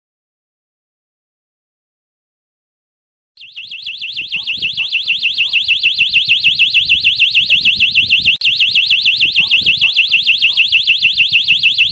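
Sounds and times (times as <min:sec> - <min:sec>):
electronic warbling siren: 0:03.4 - 0:11.9.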